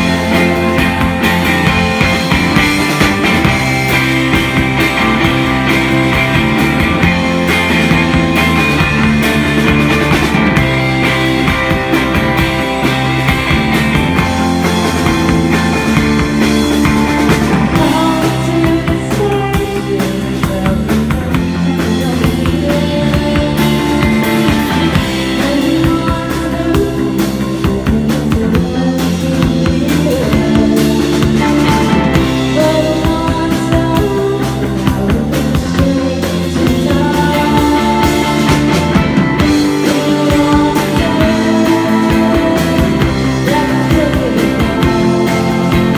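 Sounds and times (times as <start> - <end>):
drum kit: 0.0 - 45.9
electric guitar chords: 0.0 - 45.9
woman singing: 17.4 - 45.9.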